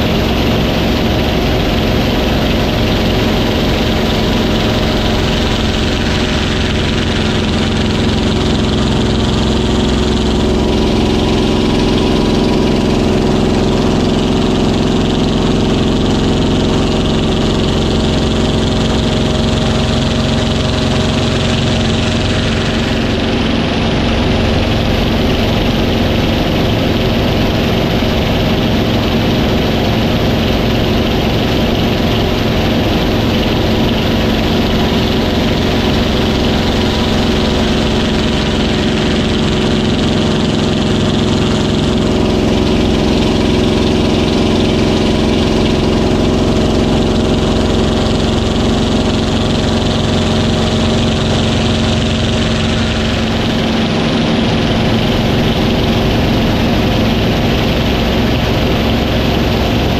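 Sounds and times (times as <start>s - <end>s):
piston engine drone: 0.0s - 59.9s.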